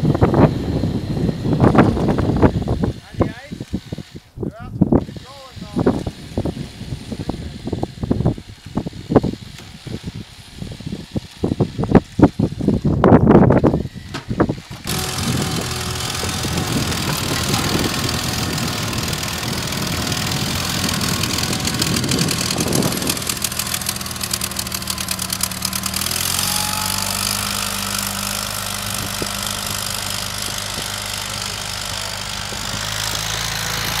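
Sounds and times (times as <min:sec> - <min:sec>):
vehicle engine running: 0:05.6 - 0:34.0.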